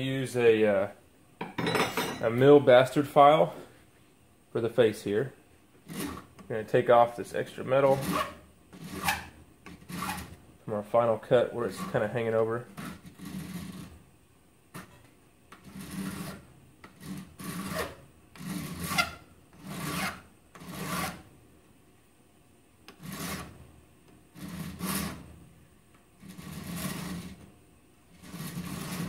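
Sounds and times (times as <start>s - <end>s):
file rasping on steel: 5.8s - 6.4s, 7.8s - 10.4s, 11.6s - 14.0s, 15.5s - 21.3s, 22.9s - 23.6s, 24.3s - 25.3s, 26.2s - 27.4s, 28.1s - 29.0s.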